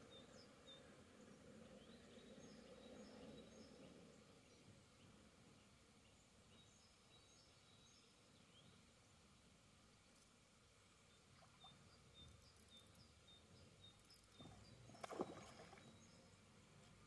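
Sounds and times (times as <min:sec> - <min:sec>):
pond-side ambience: 0:00.0 - 0:17.0
small bird chirping: 0:11.1 - 0:16.4.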